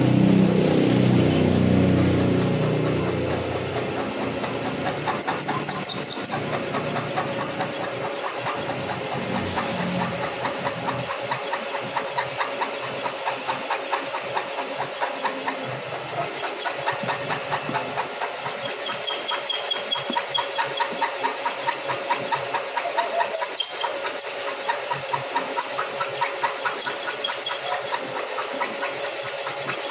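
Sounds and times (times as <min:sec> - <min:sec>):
milling machine humming: 0:00.0 - 0:29.9
drill bit ticking: 0:01.7 - 0:29.9
high squeal: 0:04.9 - 0:06.6, 0:23.2 - 0:24.7.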